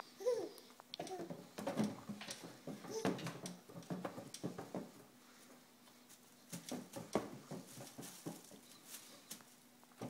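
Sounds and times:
balloon taps and rustles: 6.5 - 10.0.

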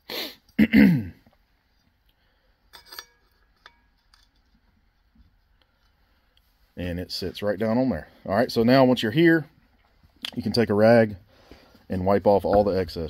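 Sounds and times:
metal clinks with short ring: 2.7 - 4.4.

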